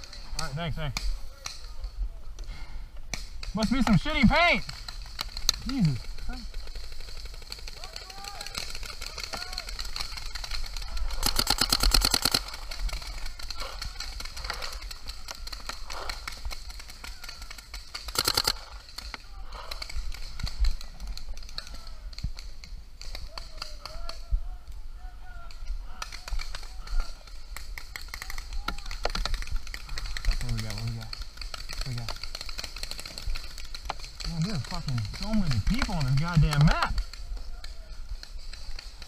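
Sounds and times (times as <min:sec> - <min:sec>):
paintball marker rapid shots: 0:03.1 - 0:21.7, 0:26.0 - 0:37.2
distant paintball shots popping: 0:03.1 - 0:24.3, 0:25.9 - 0:39.0.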